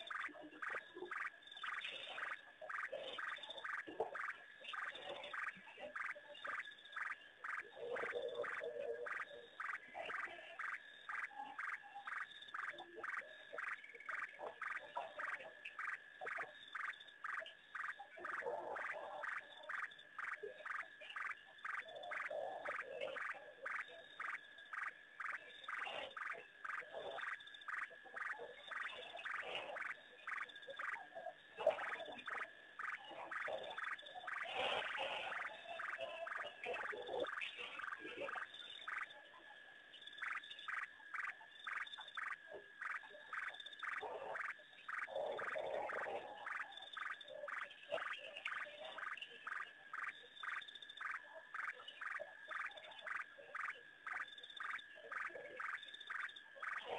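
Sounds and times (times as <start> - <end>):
frog pulsing call: 0.0 - 56.9
low frog croaks: 0.0 - 56.9.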